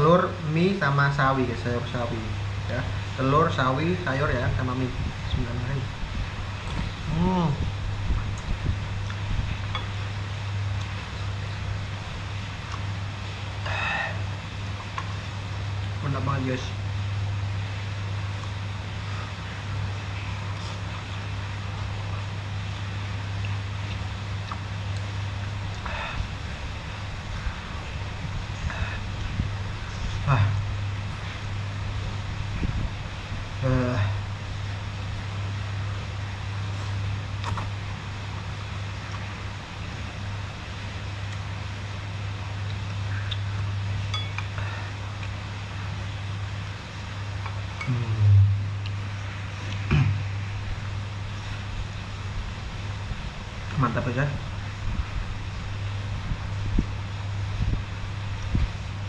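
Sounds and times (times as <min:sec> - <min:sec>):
low hum: 0:00.0 - 0:59.0
heavy rain hissing: 0:25.8 - 0:35.1.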